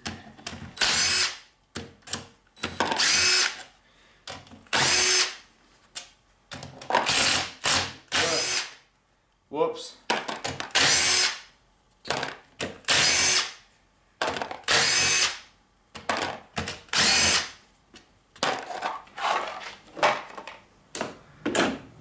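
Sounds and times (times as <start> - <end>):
cordless drill spinning bolts: 2.9 - 3.6, 16.9 - 17.5.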